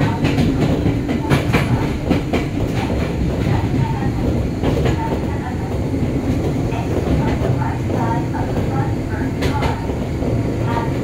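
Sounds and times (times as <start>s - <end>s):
wheels clacking over rail joints: 0.0s - 8.8s
train wheels rumbling on track: 0.0s - 11.0s.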